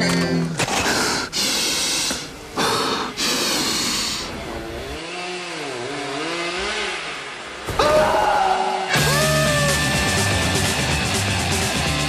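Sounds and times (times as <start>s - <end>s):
chainsaw engine revving: 2.6s - 7.6s.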